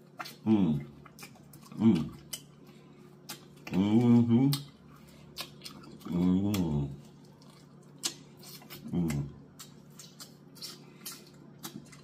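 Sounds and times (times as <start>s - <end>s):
lip smacks and chewing: 0.0s - 12.0s
person humming mmm: 0.3s - 1.0s, 1.6s - 2.5s, 3.6s - 4.7s, 6.0s - 7.0s, 8.7s - 9.4s.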